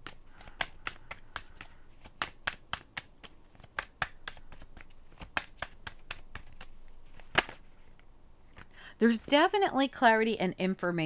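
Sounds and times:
cards being shuffled: 0.0 - 8.7.

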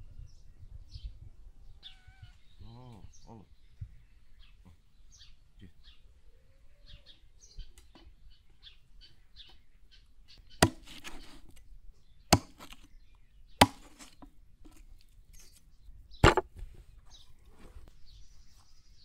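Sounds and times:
faint bird chirps: 0.0 - 10.6, 15.0 - 19.0
heavy chopping blows: 10.6 - 11.4, 12.3 - 12.9, 13.6 - 14.3, 16.2 - 16.6.

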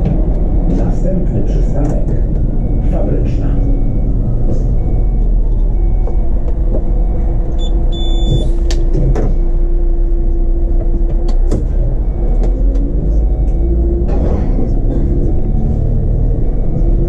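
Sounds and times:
bus engine rumble: 0.0 - 17.0.

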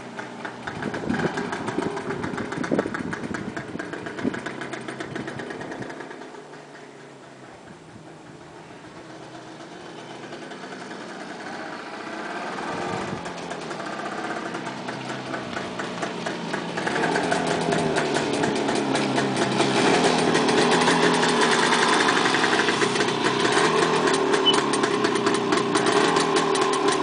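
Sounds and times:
motorcycle engine approaching: 0.0 - 27.0.

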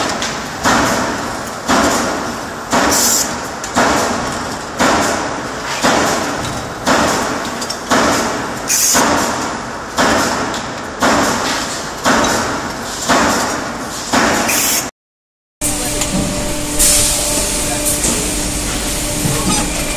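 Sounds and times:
hydraulic press strokes: 2.8 - 3.4, 8.7 - 9.1, 13.0 - 14.9, 15.6 - 19.9
short high air hiss: 16.7 - 17.7.

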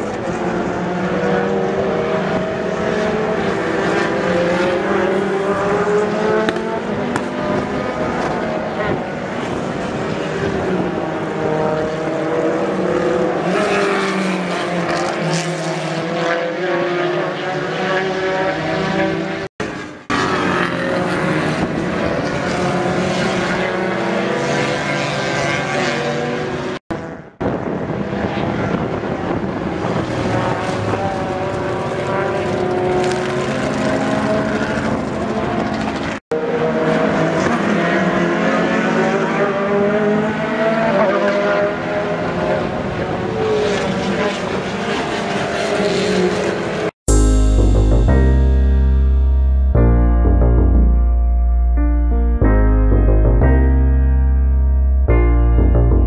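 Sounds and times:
race car engines passing: 0.0 - 26.8, 27.8 - 46.9
piano-like music: 47.1 - 56.0.

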